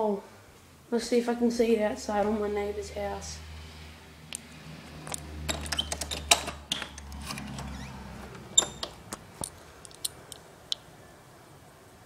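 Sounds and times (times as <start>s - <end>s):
door lock clicks and knocks: 5.1s - 7.7s.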